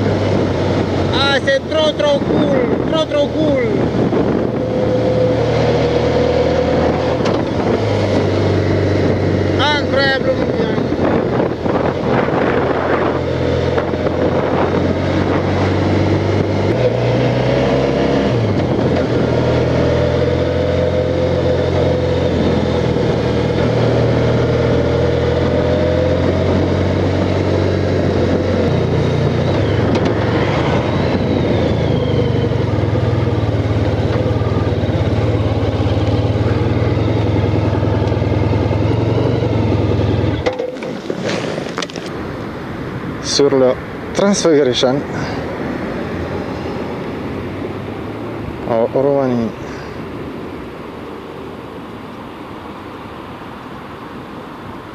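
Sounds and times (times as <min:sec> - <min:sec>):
motorcycle engine running: 0:17.7 - 0:42.2.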